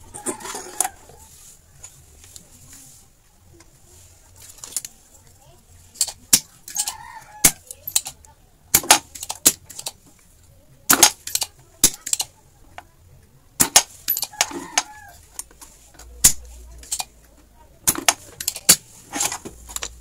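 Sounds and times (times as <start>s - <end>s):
tools clicking on circuit board: 6.0s - 10.0s, 10.9s - 12.4s, 16.2s - 17.2s.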